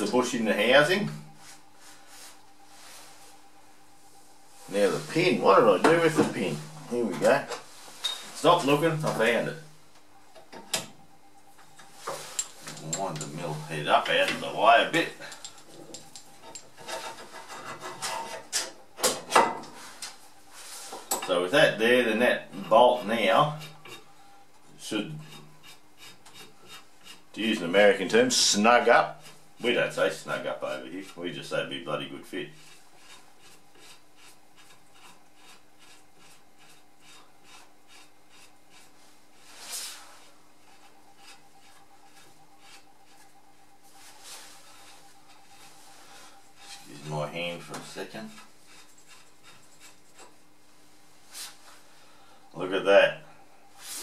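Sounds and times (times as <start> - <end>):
bolt rubbing and ticking on metal: 15.2 - 18.7
metal scrape: 15.6 - 18.7.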